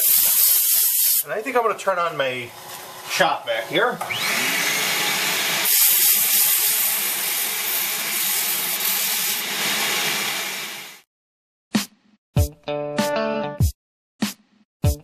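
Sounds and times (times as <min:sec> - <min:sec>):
shop vacuum running: 0:00.0 - 0:11.0
sanding pad rubbing on wood: 0:05.6 - 0:09.8.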